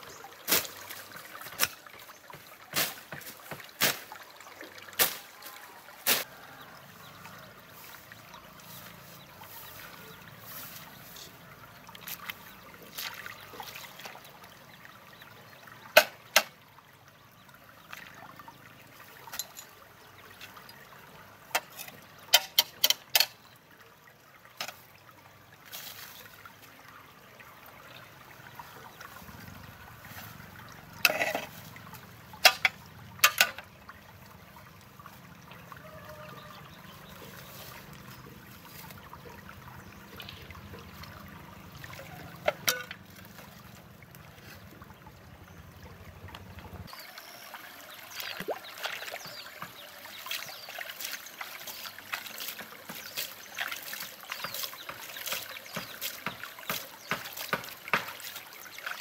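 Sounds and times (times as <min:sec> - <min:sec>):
stream trickling: 0:00.0 - 0:59.0
machete chopping brush: 0:00.5 - 0:00.8, 0:02.7 - 0:04.2, 0:05.0 - 0:05.3, 0:06.0 - 0:06.3.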